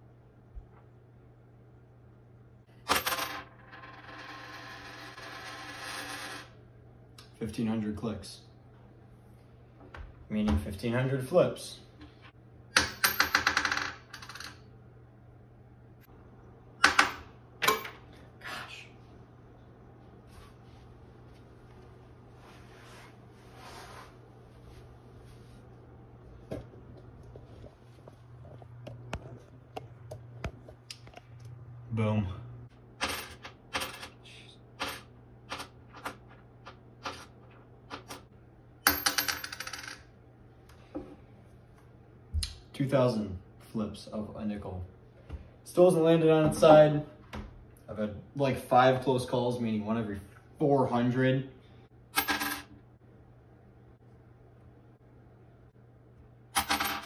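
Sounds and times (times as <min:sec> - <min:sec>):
coin clinking on a tabletop: 0:02.8 - 0:06.5, 0:12.8 - 0:14.6, 0:33.0 - 0:34.1, 0:38.9 - 0:40.1, 0:52.2 - 0:52.7, 0:56.6 - 0:57.0
coin rattle: 0:02.9 - 0:06.5, 0:12.8 - 0:14.6, 0:33.0 - 0:34.2, 0:38.9 - 0:40.1, 0:52.2 - 0:52.7, 0:56.6 - 0:57.0.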